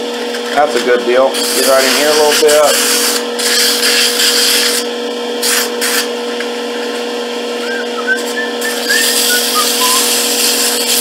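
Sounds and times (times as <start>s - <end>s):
sandpaper rubbing on spinning wood: 1.3s - 6.1s, 8.2s - 11.0s
lathe motor hum: 6.1s - 11.0s.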